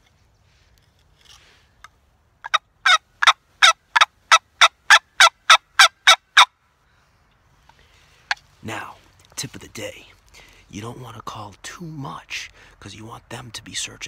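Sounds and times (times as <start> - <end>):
turkey box call yelps: 2.4 - 6.5.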